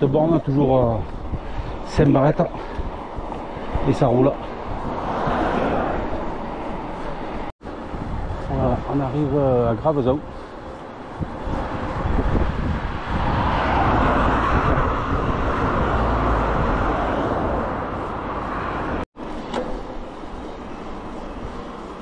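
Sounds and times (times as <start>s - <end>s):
wind rumbling on microphone: 0.0s - 19.1s
bicycle ride noise: 0.0s - 22.0s
car passing: 2.4s - 8.1s, 10.0s - 19.0s.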